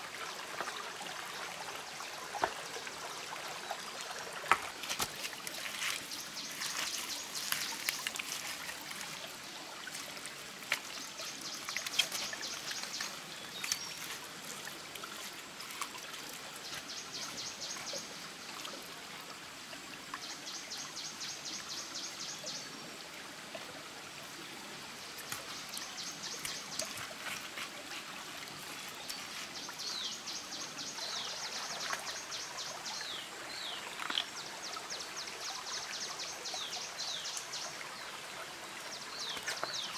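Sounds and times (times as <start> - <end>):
stream trickling over rocks: 0.0 - 39.9
stones knocking and wet slaps: 4.4 - 9.1, 11.6 - 14.2, 25.2 - 29.6, 39.3 - 39.9.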